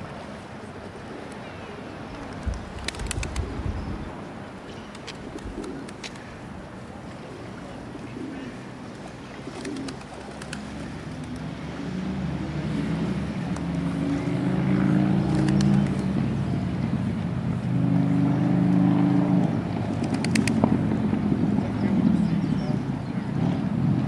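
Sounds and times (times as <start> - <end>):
pigeons cooing: 4.7 - 6.5, 7.2 - 11.4.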